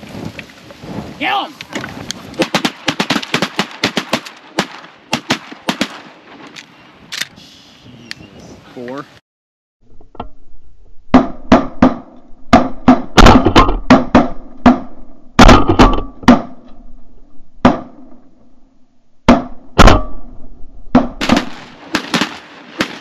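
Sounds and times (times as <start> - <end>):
shotguns firing: 2.4 - 6.4, 11.1 - 16.6, 19.3 - 20.3, 20.9 - 23.0.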